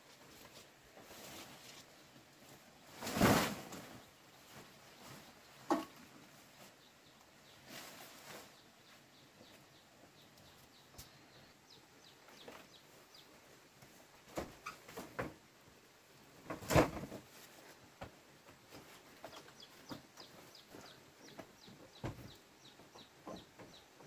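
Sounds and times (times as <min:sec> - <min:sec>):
birds chirping: 0:03.8 - 0:13.6, 0:18.9 - 0:24.0.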